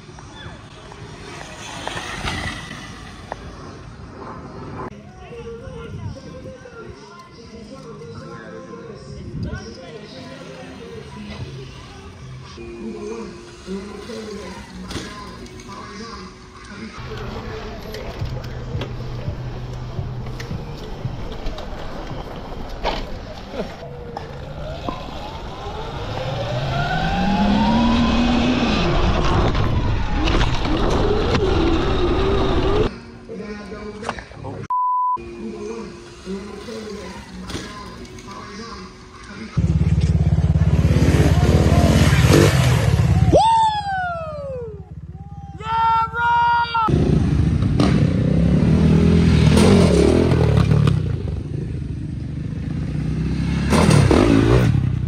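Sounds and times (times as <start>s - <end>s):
wind and tyres rumble: 0.0s - 12.6s, 17.0s - 32.9s
rough rushing noise: 1.0s - 4.9s.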